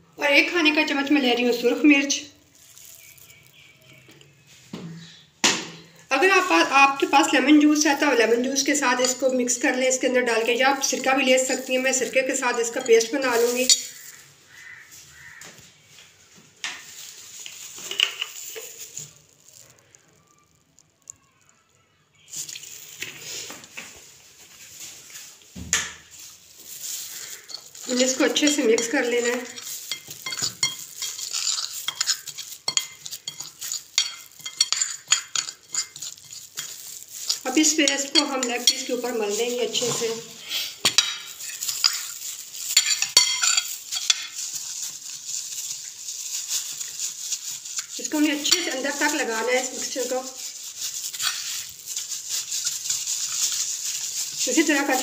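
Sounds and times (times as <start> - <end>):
plastic glove crinkling: 0.2 - 5.2, 6.0 - 55.0
liquid trickling from a bottle: 22.2 - 23.3.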